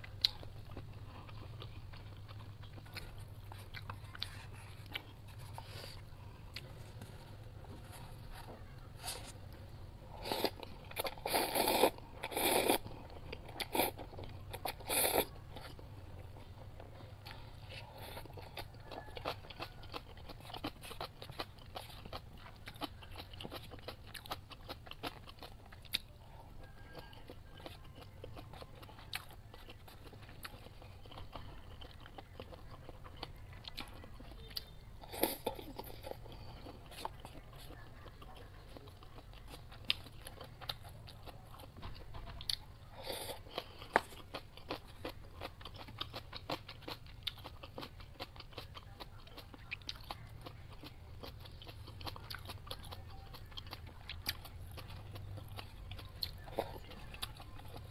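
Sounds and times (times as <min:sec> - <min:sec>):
person chewing noodles: 0:00.0 - 0:57.9.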